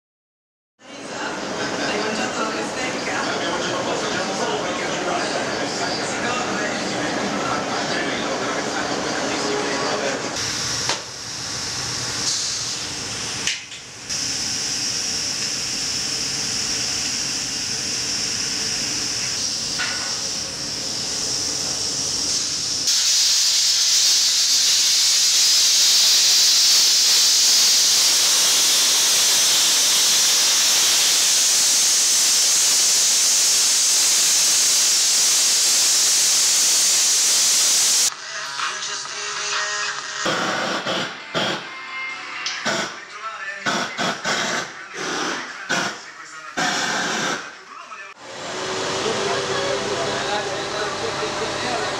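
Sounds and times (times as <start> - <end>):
sandblasting nozzle hiss: 10.4 - 13.5, 14.1 - 38.1, 46.6 - 47.4.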